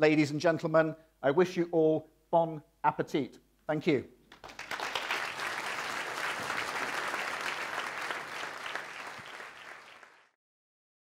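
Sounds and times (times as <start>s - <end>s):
audience applauding: 4.3s - 10.4s.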